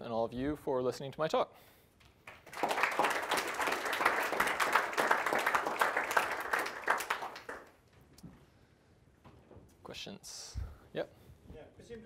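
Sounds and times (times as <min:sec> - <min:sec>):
audience applauding: 0:02.2 - 0:07.8.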